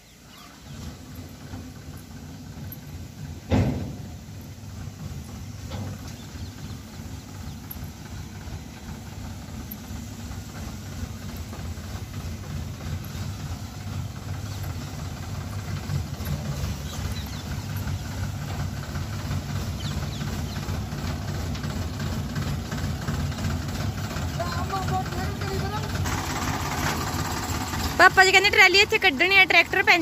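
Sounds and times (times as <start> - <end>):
diesel tractor engine rumbling: 0.0 - 30.0
sharp bang: 3.5 - 4.1.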